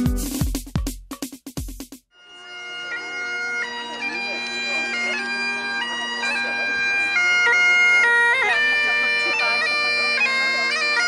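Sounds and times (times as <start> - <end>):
bagpipe music: 2.1 - 11.0.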